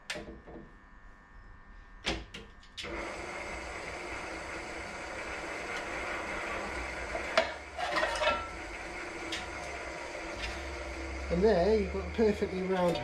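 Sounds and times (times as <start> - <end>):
pedestal drill running: 2.8 - 13.0
drill bit scraping metal: 3.5 - 13.0.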